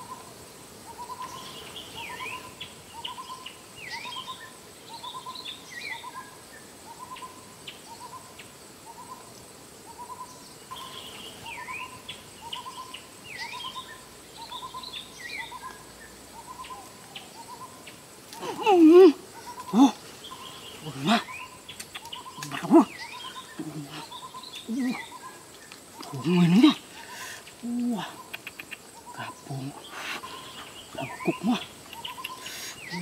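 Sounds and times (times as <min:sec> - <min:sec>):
birds chirping and whistling: 0:19.4 - 0:25.4, 0:29.3 - 0:33.0.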